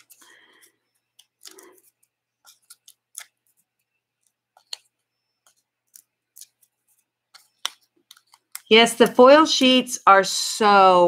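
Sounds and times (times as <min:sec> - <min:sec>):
paper clicks and rustles: 0:00.0 - 0:08.7.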